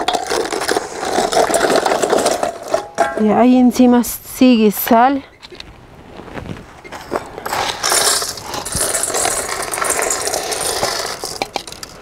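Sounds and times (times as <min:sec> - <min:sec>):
salt grains rattling on ice: 0:07.5 - 0:12.0.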